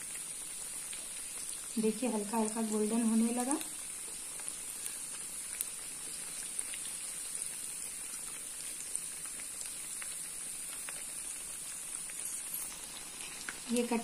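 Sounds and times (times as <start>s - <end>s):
deep-frying sizzle: 0.0s - 14.0s
oil crackling pops: 3.3s - 13.7s.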